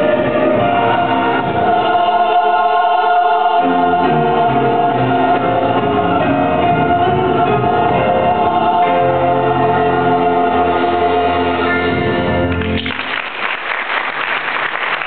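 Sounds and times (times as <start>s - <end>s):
church choir holding a chord: 0.0s - 12.4s
applause: 12.5s - 15.0s.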